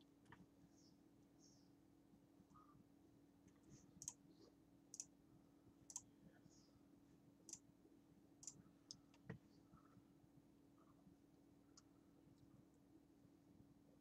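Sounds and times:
faint steady hum: 0:00.0 - 0:14.0
computer mouse clicks: 0:03.5 - 0:04.2, 0:04.9 - 0:05.1, 0:05.9 - 0:06.1, 0:08.4 - 0:09.4.

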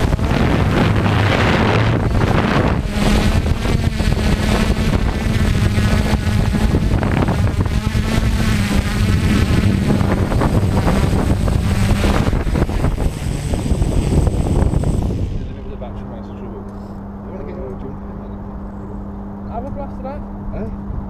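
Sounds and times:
wind noise on microphone: 0:00.0 - 0:16.0
quadcopter propellers buzzing: 0:00.0 - 0:21.0.

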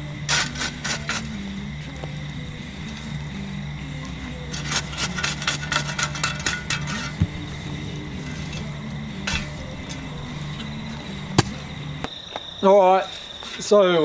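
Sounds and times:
metal shovel scraping coals: 0:00.0 - 0:12.1, 0:13.0 - 0:14.0
shovel knocking: 0:00.3 - 0:01.4, 0:04.5 - 0:11.7.

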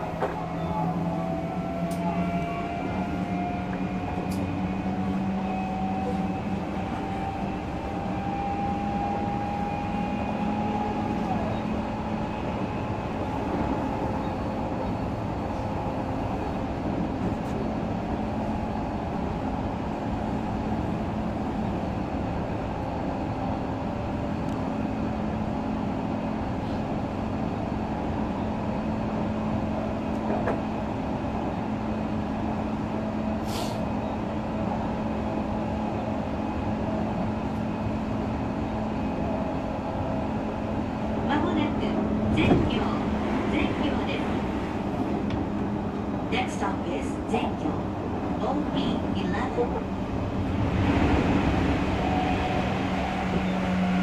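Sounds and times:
train wheels rumbling on rails: 0:00.0 - 0:54.0
short hiss: 0:33.4 - 0:33.8.

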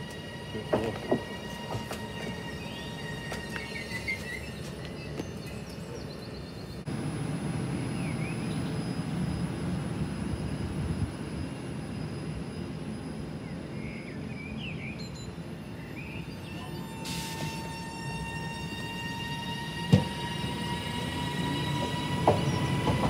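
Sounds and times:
train wheels rumbling: 0:00.0 - 0:06.1, 0:15.5 - 0:23.0
birds chirping: 0:00.1 - 0:06.9, 0:13.2 - 0:23.0.

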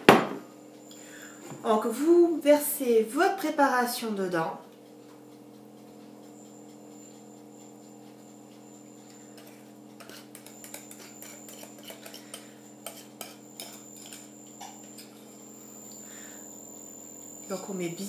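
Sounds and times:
steady low hum: 0:00.0 - 0:18.0
spatula scraping glass bowl: 0:09.3 - 0:14.4.

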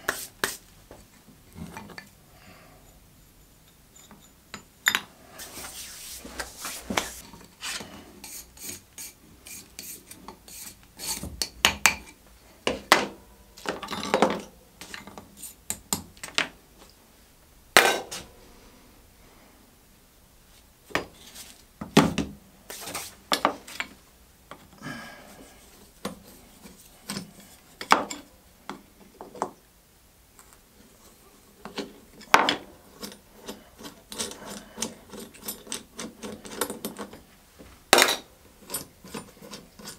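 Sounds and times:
rubbing and scraping: 0:05.4 - 0:11.3, 0:38.6 - 0:39.9.

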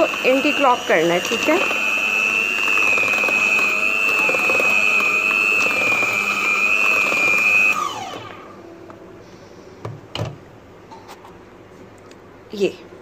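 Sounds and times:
electric hand mixer whining: 0:00.0 - 0:08.6.

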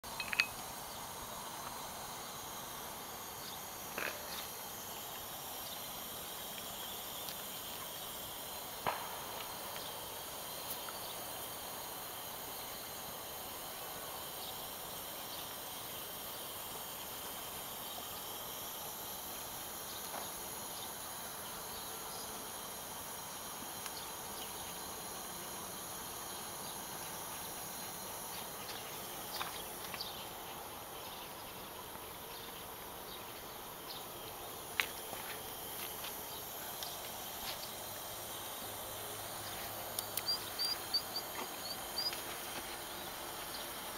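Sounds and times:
steady high-pitched hiss: 0:00.0 - 0:43.9.

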